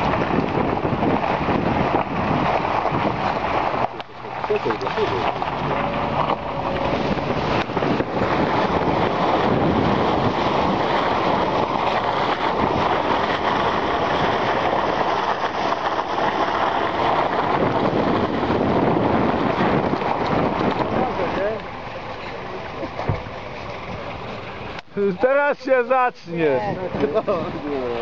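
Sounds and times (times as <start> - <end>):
tyre noise on snow: 0.0 - 21.6
vehicle engine: 0.0 - 28.0.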